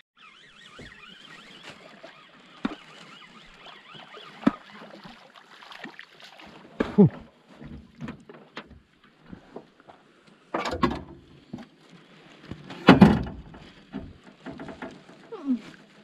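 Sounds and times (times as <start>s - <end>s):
fishing gear clattering in boat: 6.7s - 11.8s, 12.4s - 16.0s.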